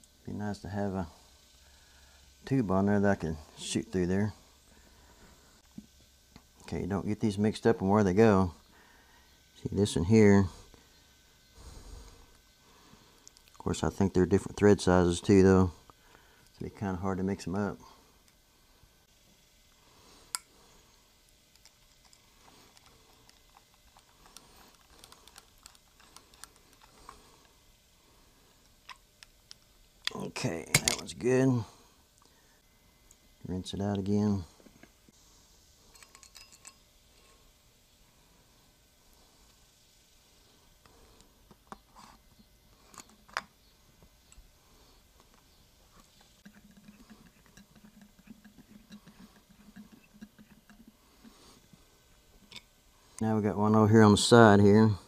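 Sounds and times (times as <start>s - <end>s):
metal parts clicking and tapping: 35.9s - 36.8s.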